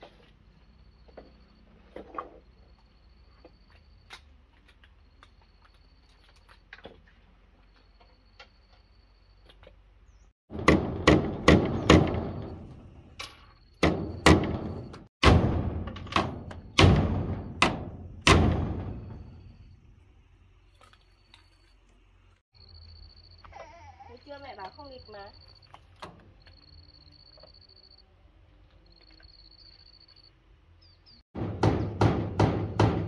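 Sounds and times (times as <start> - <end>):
loud hard knocks: 10.5 - 12.7, 13.8 - 19.4, 31.4 - 33.0.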